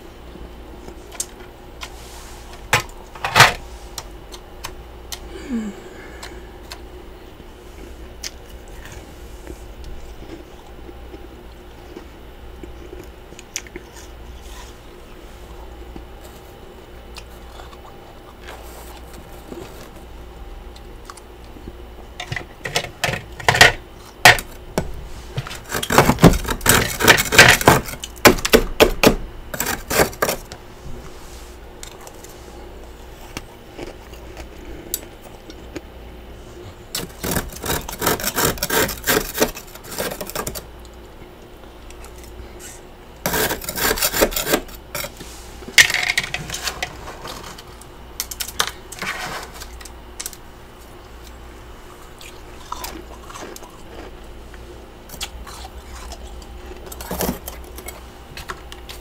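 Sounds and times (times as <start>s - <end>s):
freezer frost crunching: 7.6s - 30.6s, 31.4s - 35.9s, 36.5s - 59.0s.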